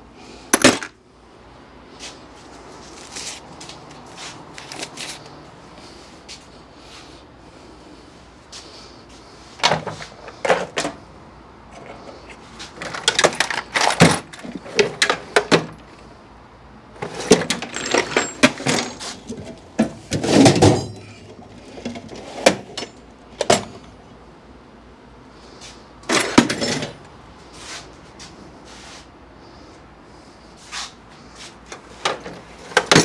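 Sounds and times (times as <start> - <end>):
metal hand tools clinking: 17.3 - 19.5.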